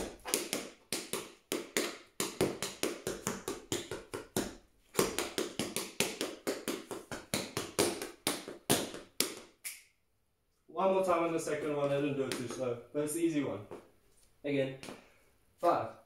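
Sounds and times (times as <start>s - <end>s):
tap shoes tapping on floor: 0.0s - 9.6s.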